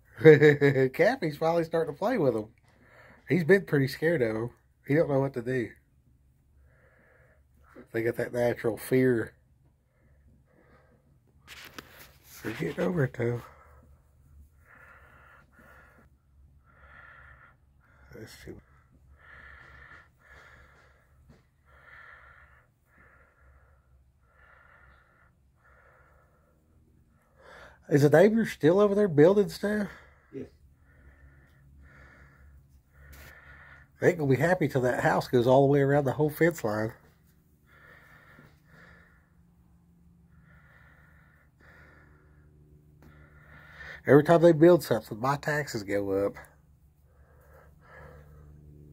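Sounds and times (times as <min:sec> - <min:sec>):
faint breathing: 0:01.3 - 0:04.8, 0:05.7 - 0:48.9.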